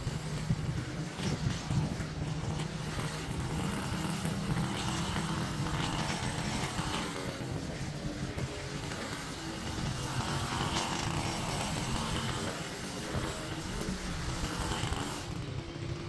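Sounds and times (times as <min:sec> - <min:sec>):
small gasoline engine running: 0:00.0 - 0:16.0.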